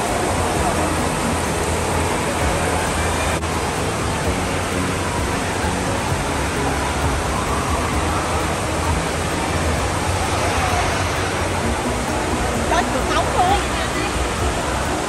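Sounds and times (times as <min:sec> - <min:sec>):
faint hum of voices: 0:00.0 - 0:15.0
water rushing and splashing: 0:00.0 - 0:15.0.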